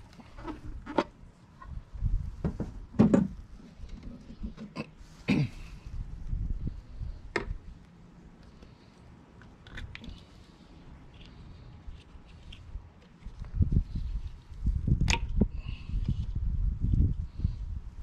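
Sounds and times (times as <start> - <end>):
knocks and clunks of handling: 2.4 - 4.8.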